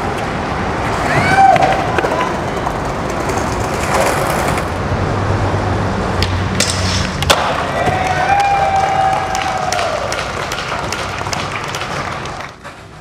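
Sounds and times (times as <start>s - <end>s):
skateboard wheels rolling on concrete: 0.0s - 13.0s
skateboard cracking and clacking: 0.2s - 4.8s, 6.2s - 8.5s, 9.8s - 13.0s
skateboard landing hit: 6.2s - 8.0s.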